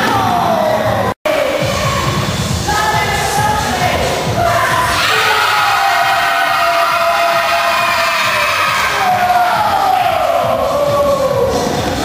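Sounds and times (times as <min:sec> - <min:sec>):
music: 0:00.0 - 0:12.0
voices yelling together: 0:04.4 - 0:11.7.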